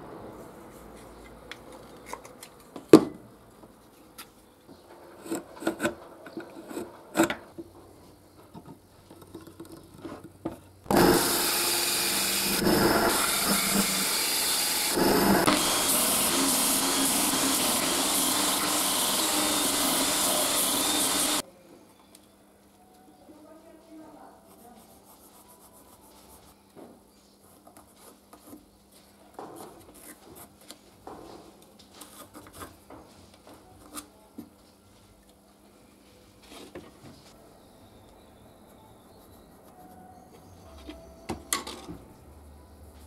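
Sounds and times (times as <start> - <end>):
band saw cutting wood: 10.9 - 21.4.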